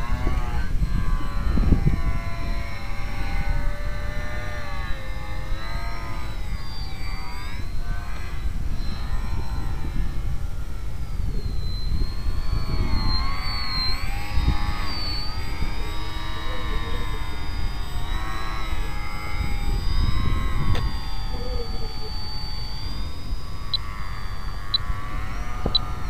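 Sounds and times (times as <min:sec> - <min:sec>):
model airplane motor: 0:00.0 - 0:26.0.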